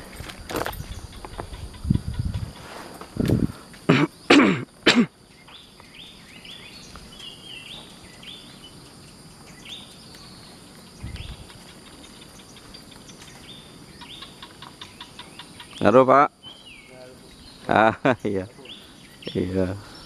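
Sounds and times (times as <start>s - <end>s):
high-pitched insect drone: 0.0s - 20.0s
bird calling: 3.5s - 20.0s.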